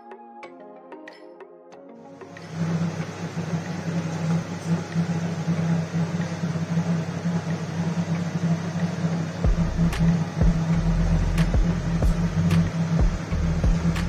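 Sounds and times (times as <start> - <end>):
mechanical hum with hiss: 2.2 - 14.0.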